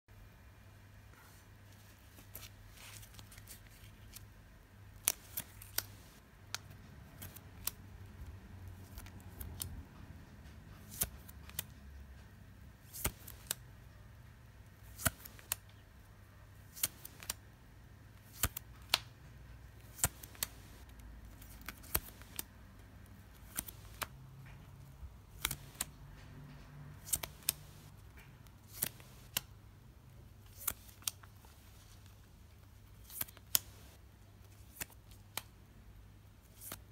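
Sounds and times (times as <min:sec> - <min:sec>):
trading cards clicking and snapping: 0:05.0 - 0:11.8, 0:12.8 - 0:13.7, 0:14.8 - 0:15.8, 0:16.7 - 0:17.4, 0:18.2 - 0:19.2, 0:19.8 - 0:22.5, 0:23.1 - 0:29.5, 0:30.5 - 0:31.9, 0:33.0 - 0:35.5.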